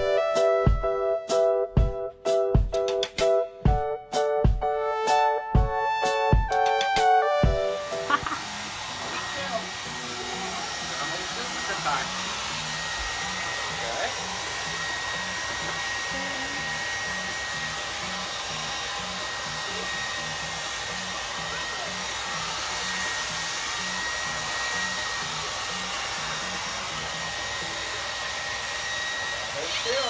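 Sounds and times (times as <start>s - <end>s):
hair dryer blowing air: 6.1s - 30.0s.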